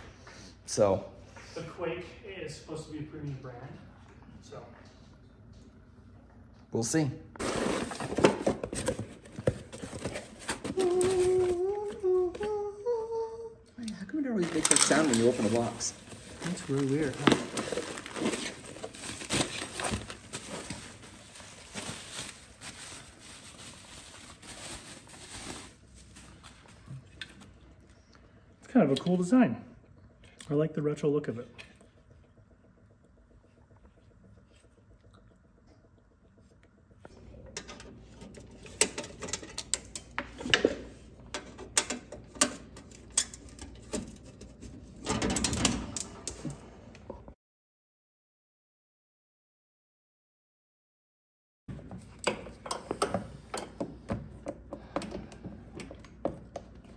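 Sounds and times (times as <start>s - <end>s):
bubble wrap crinkling: 7.4s - 12.2s, 14.4s - 27.5s.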